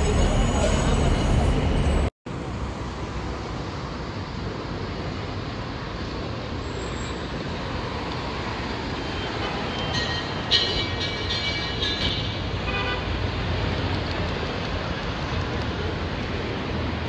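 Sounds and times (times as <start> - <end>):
crowd noise: 0.0 - 2.1
traffic hum: 0.0 - 17.0.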